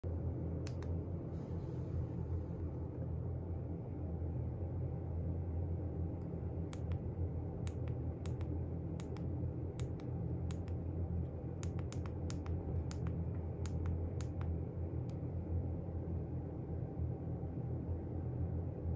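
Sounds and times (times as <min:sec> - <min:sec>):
low hum: 0:00.0 - 0:18.9
sharp clicks: 0:06.7 - 0:10.8, 0:11.6 - 0:15.2.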